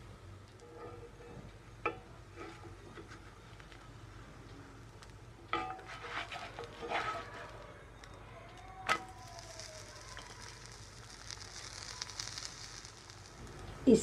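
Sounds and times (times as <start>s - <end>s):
pancake sizzling: 0.0s - 14.0s
spatula scraping a pan: 0.6s - 1.4s, 2.3s - 3.4s, 5.5s - 7.7s.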